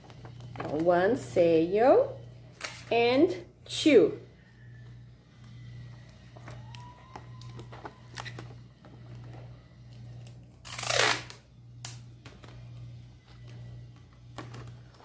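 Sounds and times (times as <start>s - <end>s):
steady low hum: 0.0s - 15.0s
adhesive tape torn off roll: 10.6s - 12.0s.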